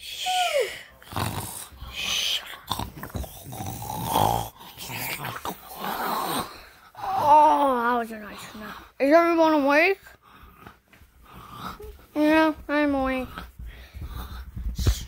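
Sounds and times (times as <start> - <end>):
person mock snoring: 1.0 - 7.8.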